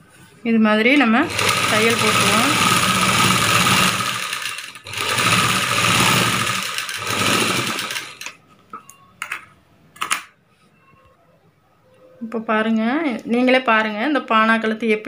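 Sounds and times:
sewing machine stitching: 1.2 - 8.4.

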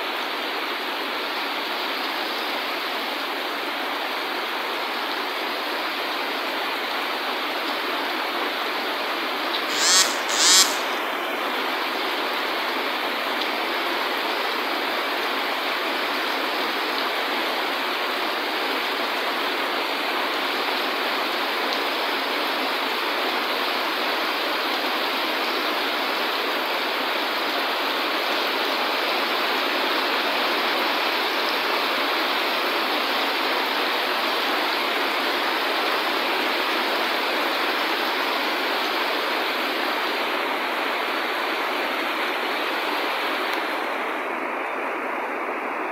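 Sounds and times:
brief loud noises: 9.7 - 11.1.

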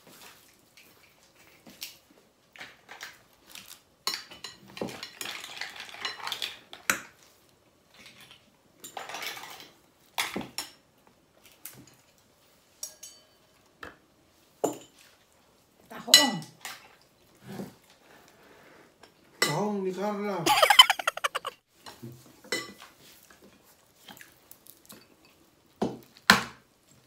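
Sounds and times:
cutlery clinking on plates: 12.8 - 13.4, 14.7 - 15.0.

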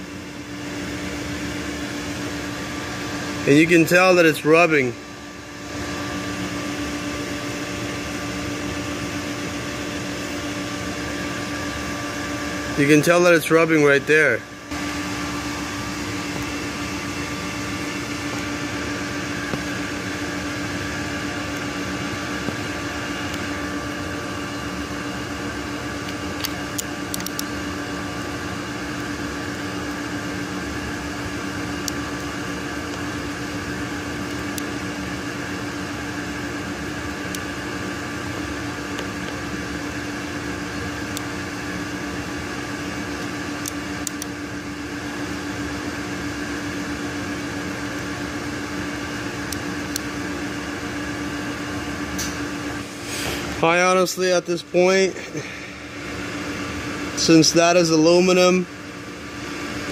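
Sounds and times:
machine humming: 0.0 - 59.9.

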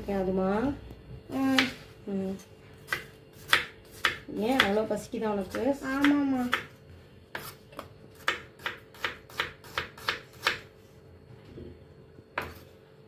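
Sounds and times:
knife chopping on wooden board: 2.9 - 4.8, 5.5 - 6.7, 7.3 - 10.7.

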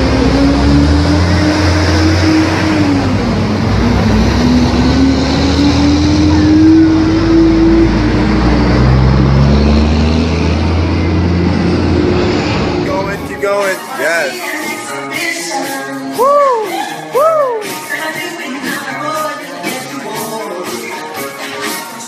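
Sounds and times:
vehicle engine running loudly: 0.0 - 13.3.

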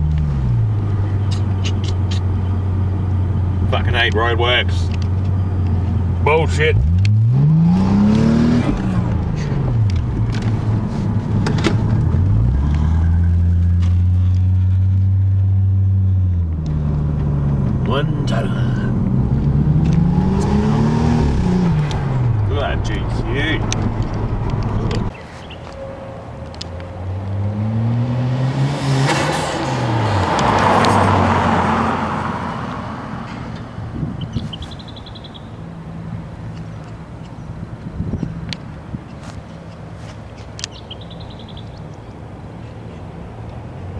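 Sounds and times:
car engine heard from cabin: 16.2 - 25.2.

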